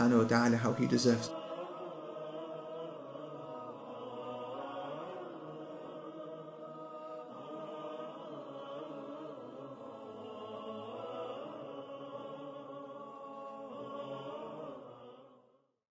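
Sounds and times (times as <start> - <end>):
choir singing held notes: 0.0 - 15.5.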